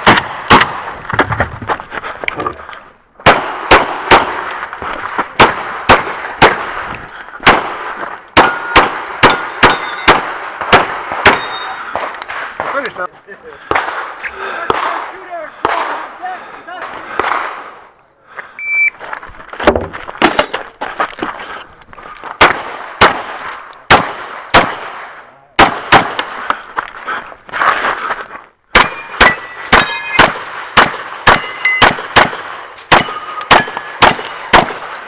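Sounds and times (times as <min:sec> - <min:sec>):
pistol shots: 0:00.0 - 0:01.0, 0:03.2 - 0:13.0, 0:13.6 - 0:16.1, 0:16.8 - 0:17.8, 0:22.4 - 0:26.5, 0:28.7 - 0:35.0
steel targets clanging: 0:08.0 - 0:10.2, 0:11.2 - 0:11.9, 0:28.8 - 0:32.1, 0:32.8 - 0:35.0
shot timer beep: 0:18.6 - 0:19.0.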